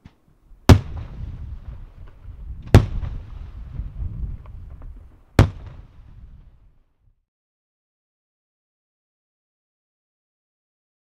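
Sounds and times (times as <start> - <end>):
faint firework crackles: 0.0 - 6.6
firework shells bursting: 0.6 - 6.0.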